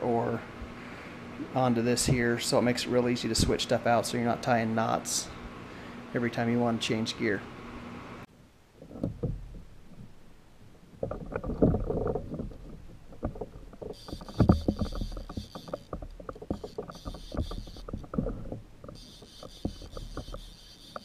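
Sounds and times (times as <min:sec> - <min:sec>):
high-pitched buzzing: 0:13.2 - 0:21.0
fishing reel clicking: 0:13.8 - 0:18.1, 0:18.9 - 0:21.0.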